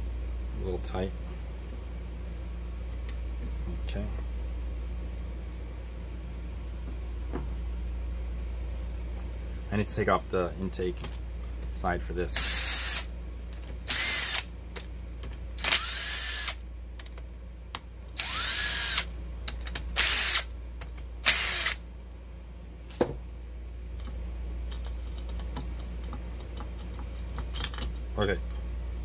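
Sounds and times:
power drill whining: 15.6 - 16.6, 18.2 - 19.1, 20.0 - 20.4, 21.3 - 21.8.

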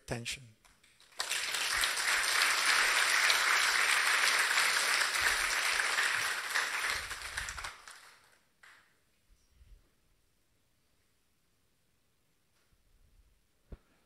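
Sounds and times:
audience applauding: 0.8 - 8.8.

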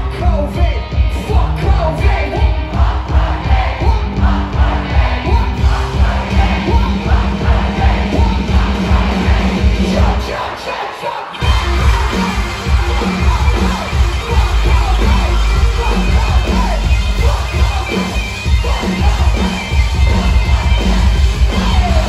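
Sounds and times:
heavy kick drum beat: 0.0 - 10.3, 11.4 - 22.0
live rock band playing: 0.0 - 10.5, 11.3 - 22.0
crowd yelling: 0.0 - 22.0
person singing: 5.2 - 22.0.

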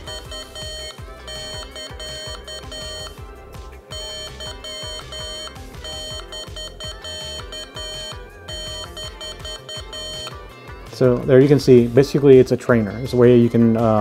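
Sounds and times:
morse code beeping: 0.0 - 3.2, 3.8 - 10.4.

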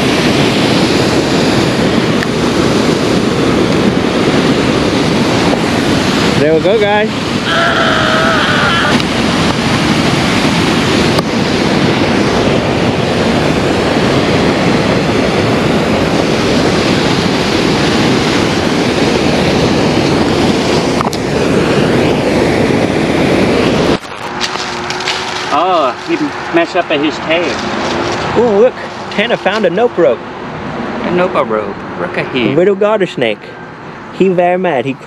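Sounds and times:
whitewater rushing: 0.0 - 35.0.

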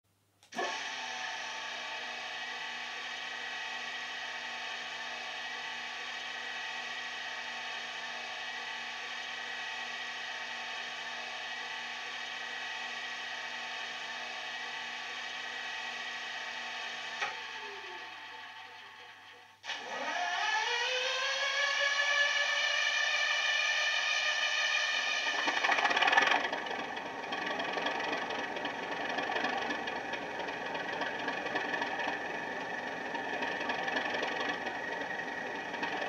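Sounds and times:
falling whine: 22.3 - 36.0
diesel locomotive engine idling: 25.3 - 36.0.

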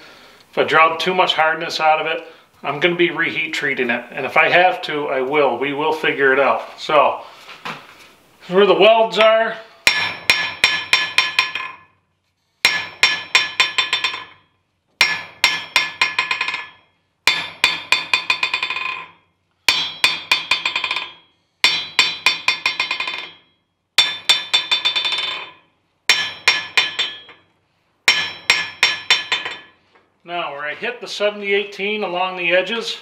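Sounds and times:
hammer ringing on anvil: 9.8 - 11.8, 12.6 - 14.4, 15.0 - 27.4, 28.1 - 29.8.

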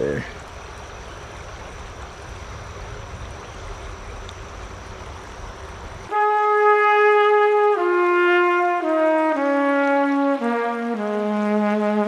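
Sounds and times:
river water flowing: 0.0 - 12.0
brass-like background music: 6.1 - 12.0.

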